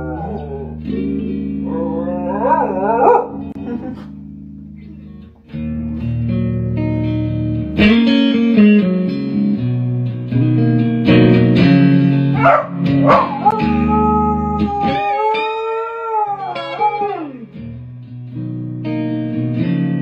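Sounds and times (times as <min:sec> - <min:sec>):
dog howling: 0:00.0 - 0:03.5, 0:12.4 - 0:17.4
electric guitar through amplifier: 0:00.0 - 0:20.0
dog yelping: 0:01.7 - 0:03.4, 0:12.4 - 0:13.7.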